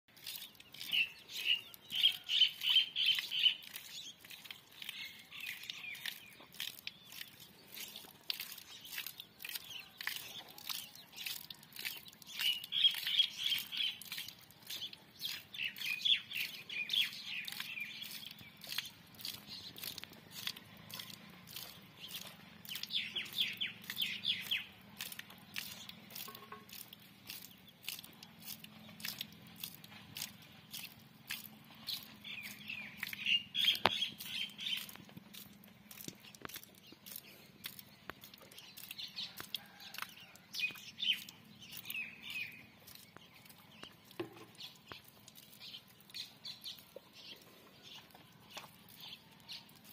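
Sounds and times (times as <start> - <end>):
small birds chirping: 0.1 - 49.9.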